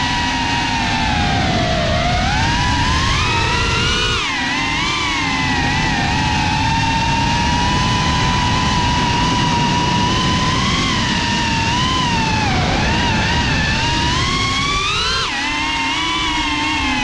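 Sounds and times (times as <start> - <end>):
drone motors whining: 0.0 - 17.0.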